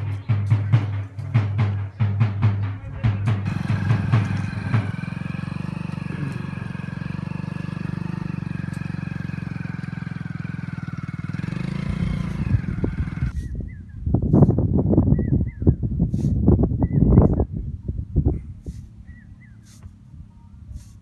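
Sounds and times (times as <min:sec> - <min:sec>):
small motorcycle engine running: 0:03.4 - 0:13.4.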